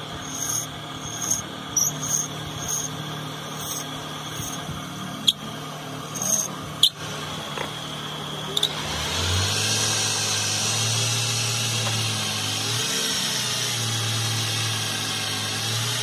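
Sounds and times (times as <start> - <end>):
blade scraping spinning wood: 0.0 - 5.5, 6.1 - 7.0
electric lathe running: 0.0 - 16.0.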